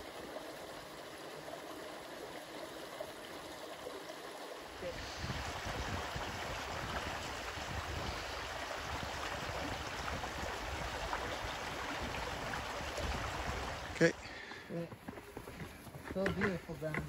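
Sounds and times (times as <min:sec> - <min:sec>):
water trickling over rocks: 0:00.0 - 0:17.0.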